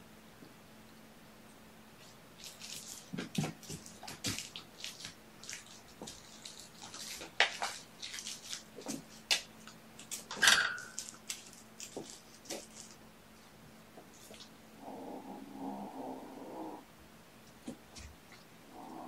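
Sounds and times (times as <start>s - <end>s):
kittens playing and scraping: 10.9s - 13.0s.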